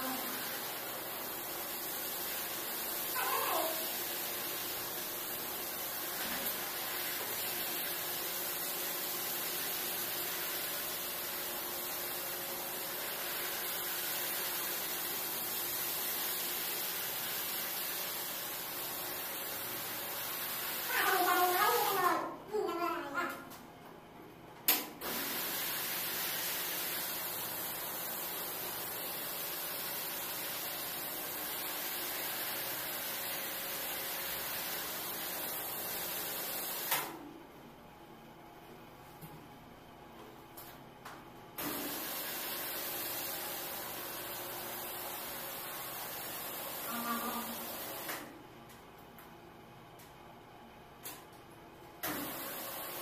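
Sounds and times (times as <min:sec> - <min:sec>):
floor scrubbing machine running: 0:00.0 - 0:22.1, 0:25.0 - 0:36.9, 0:41.6 - 0:48.2, 0:52.1 - 0:53.0.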